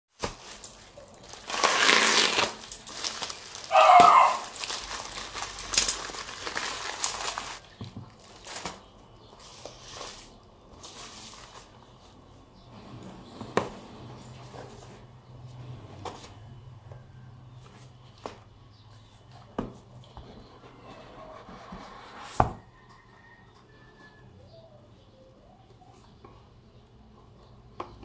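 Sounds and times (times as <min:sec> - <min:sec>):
bubble wrap crinkling: 0:00.1 - 0:12.0.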